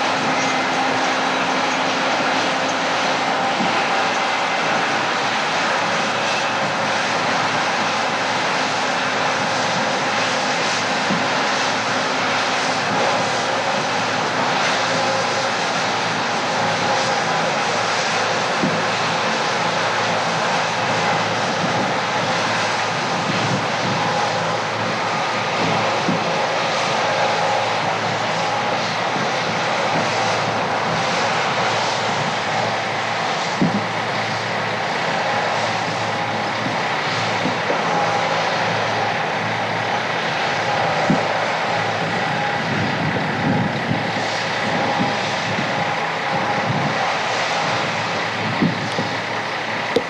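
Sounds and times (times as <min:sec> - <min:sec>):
combine diesel engine drone: 0:00.0 - 0:50.0
threshing machinery running: 0:00.0 - 0:50.0.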